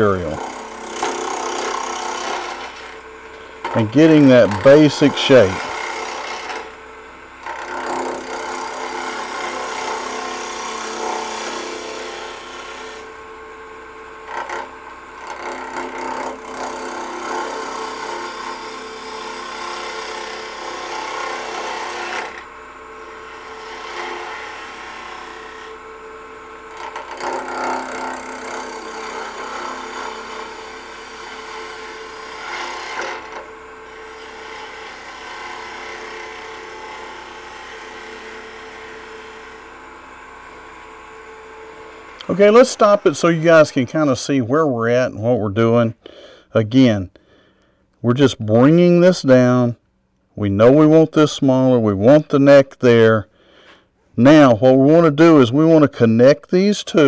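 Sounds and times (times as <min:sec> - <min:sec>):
gouge scraping wood on lathe: 0:00.0 - 0:06.8, 0:07.4 - 0:13.1, 0:14.2 - 0:22.4, 0:23.0 - 0:25.8, 0:26.6 - 0:40.6
lathe humming: 0:00.0 - 0:44.8.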